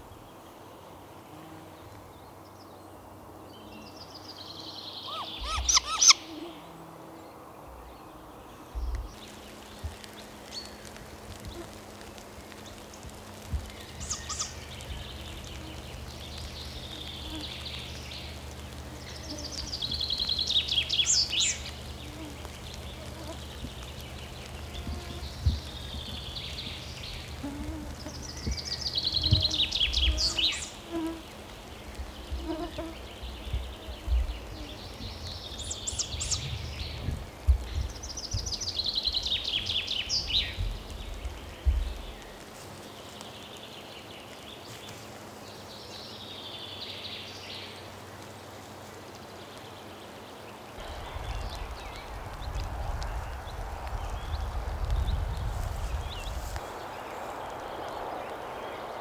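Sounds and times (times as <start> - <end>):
songbird trilling: 5.0 - 6.4.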